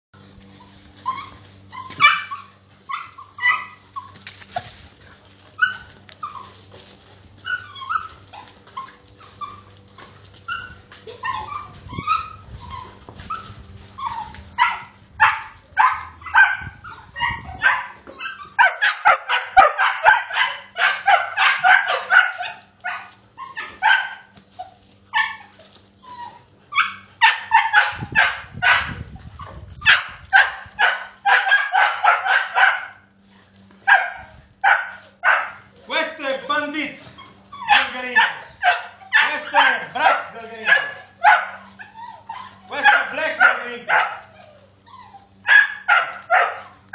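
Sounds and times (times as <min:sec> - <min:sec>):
puppies barking and yipping: 0:00.2 - 0:46.9.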